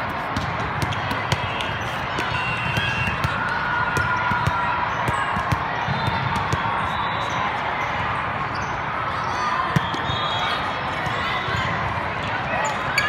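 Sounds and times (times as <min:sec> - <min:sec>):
volleyballs thumping: 0:00.0 - 0:06.9
crowd murmur: 0:00.0 - 0:13.0.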